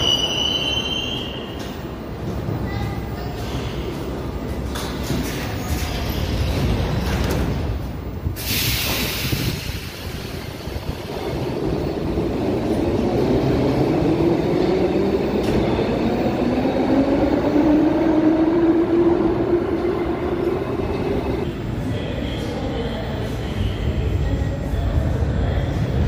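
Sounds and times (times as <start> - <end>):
short air hiss: 8.4 - 10.5.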